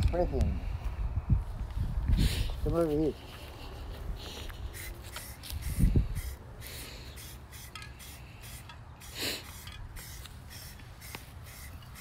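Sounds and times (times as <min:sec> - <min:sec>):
aerosol can spraying: 0:04.7 - 0:12.0.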